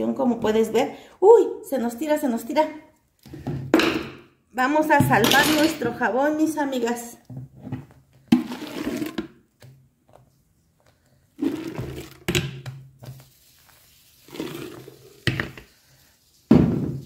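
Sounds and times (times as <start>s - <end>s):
liquid soap sloshing and splashing: 11.4s - 17.0s.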